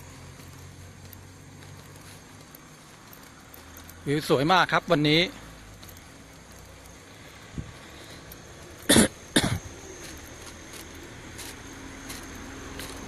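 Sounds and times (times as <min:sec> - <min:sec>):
person coughing: 0:08.9 - 0:09.7.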